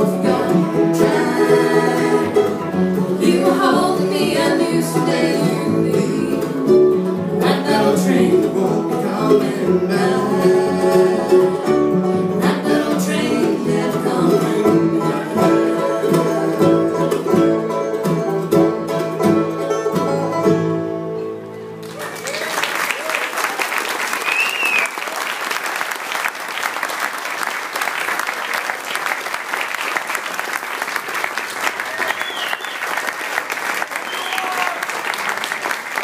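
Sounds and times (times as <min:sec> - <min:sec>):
banjo: 0:00.0 - 0:21.8
fiddle: 0:00.0 - 0:21.8
acoustic guitar: 0:00.0 - 0:22.2
upright bass: 0:00.0 - 0:22.2.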